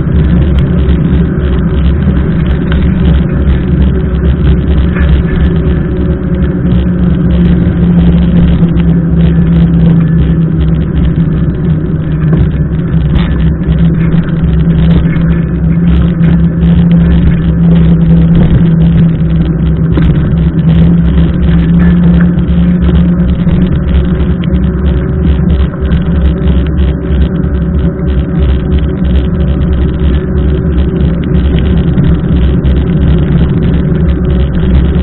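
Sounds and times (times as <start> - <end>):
wet road noise: 0.0 - 35.0
wind rumble on microphone: 0.0 - 35.0.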